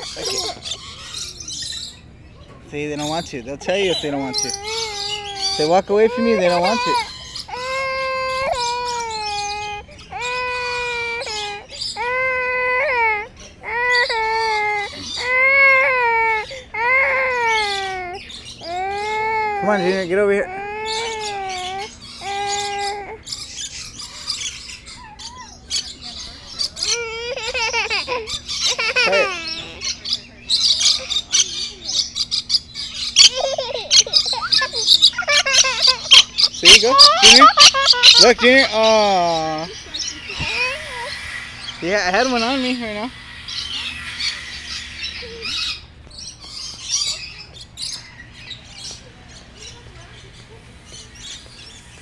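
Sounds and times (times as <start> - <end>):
lorikeets screeching and chattering: 0.0 - 52.0
young child crying: 3.9 - 23.2, 26.8 - 30.0, 33.2 - 41.6.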